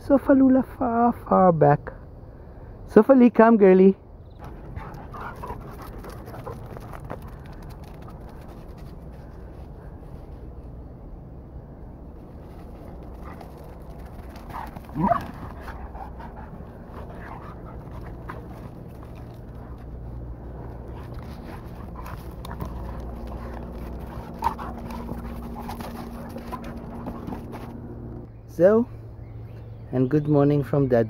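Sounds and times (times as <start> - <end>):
dogs scuffling: 4.4 - 10.5, 12.2 - 28.3
dog cry: 14.5 - 18.5
dog whining: 14.8 - 15.8.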